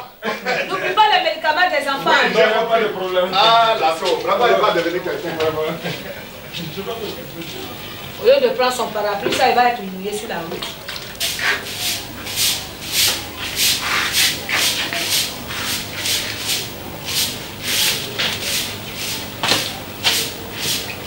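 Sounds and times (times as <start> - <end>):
straw broom sweeping cement floor: 11.2 - 21.0.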